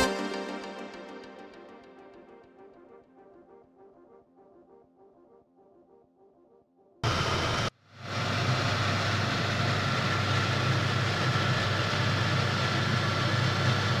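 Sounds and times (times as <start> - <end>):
mechanical hum: 7.0 - 14.0.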